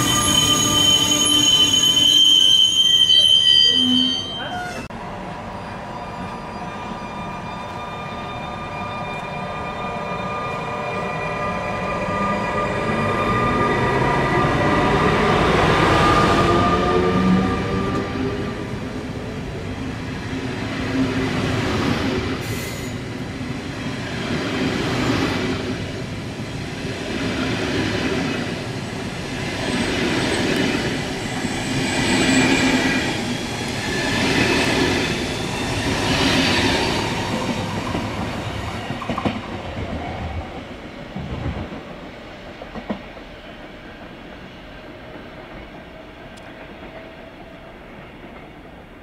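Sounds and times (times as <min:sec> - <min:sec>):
high wheel squeal: 0:00.0 - 0:04.9.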